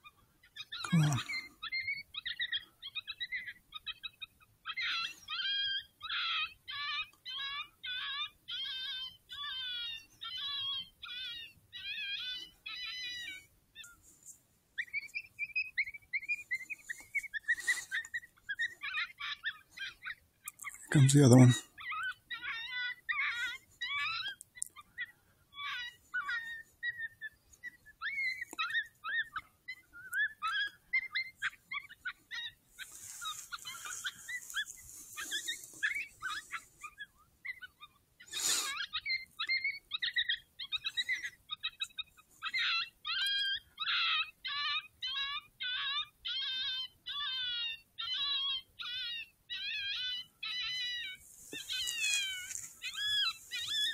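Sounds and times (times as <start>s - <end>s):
high wavering animal cries: 0.5s - 13.9s, 14.8s - 53.9s
high yips and chatter: 14.8s - 53.9s.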